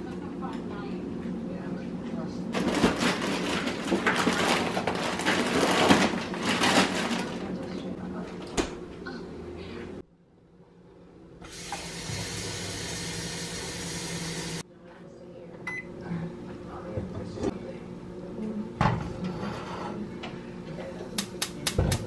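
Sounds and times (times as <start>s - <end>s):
tap water running into pot: 11.5s - 14.6s.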